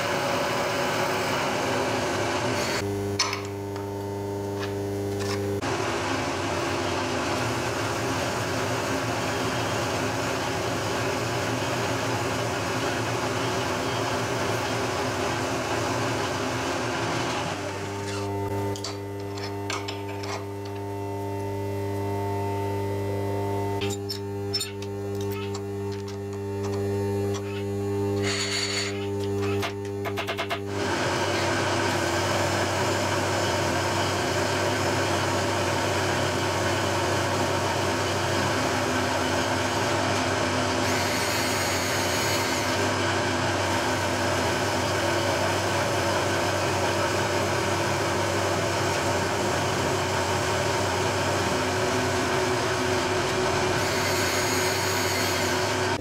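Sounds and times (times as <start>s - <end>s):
spindle motor hum: 0.0s - 56.0s
milling cutter cutting metal: 11.5s - 23.0s, 23.6s - 32.6s, 39.5s - 44.7s, 49.5s - 56.0s.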